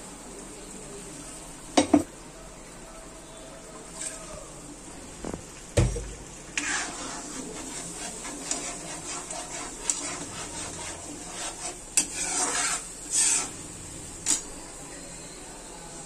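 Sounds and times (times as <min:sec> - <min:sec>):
metal spatula scraping pan: 0:06.5 - 0:14.6.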